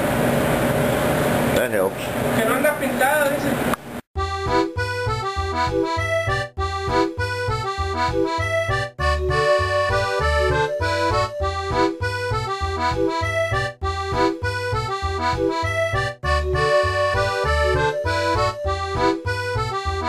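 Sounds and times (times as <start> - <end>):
accordion music: 4.2 - 20.0
bouncing bass beat: 4.2 - 20.0.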